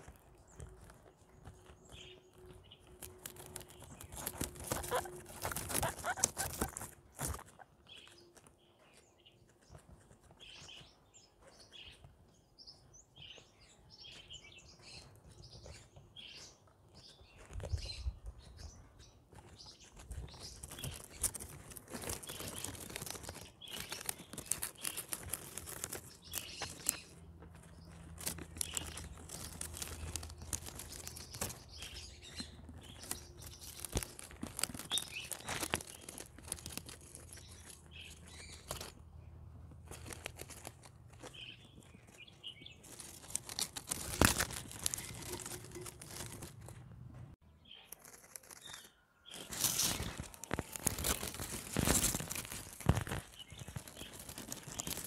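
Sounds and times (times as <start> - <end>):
guinea pigs chewing greens: 0.0 - 12.0, 14.0 - 46.8, 47.6 - 55.0
guinea pig high chirps: 2.8 - 8.2, 20.1 - 27.2.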